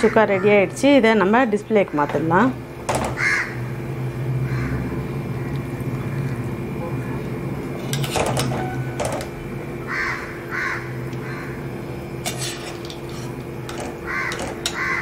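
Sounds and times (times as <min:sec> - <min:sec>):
steady low hum: 0:00.0 - 0:15.0
bird calling: 0:03.1 - 0:03.6, 0:09.9 - 0:11.7, 0:14.0 - 0:15.0
metal ladle scraping a pan: 0:07.8 - 0:09.3, 0:12.2 - 0:15.0.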